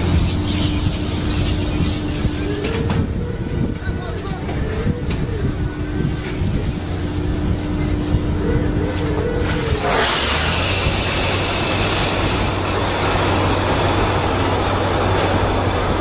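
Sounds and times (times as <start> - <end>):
loud rush of hissing: 0.0 - 2.6, 9.4 - 16.0
heavy vehicle humming: 0.0 - 16.0.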